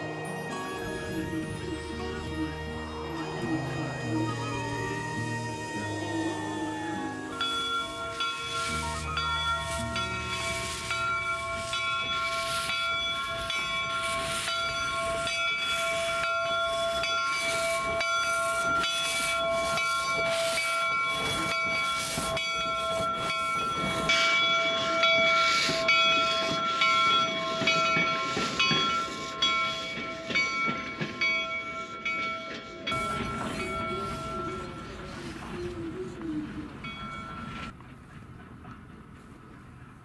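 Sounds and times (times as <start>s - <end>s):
steam locomotive chuffing: 0.0s - 40.0s
steam hiss: 3.0s - 31.2s.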